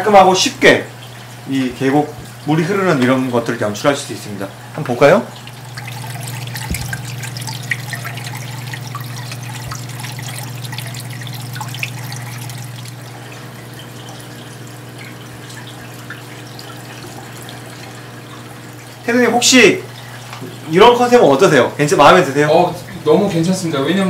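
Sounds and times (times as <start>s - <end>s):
water trickling in small stream: 0.0s - 21.2s
steady low pump hum: 0.0s - 24.0s
small water drips: 4.4s - 19.2s, 19.8s - 20.7s.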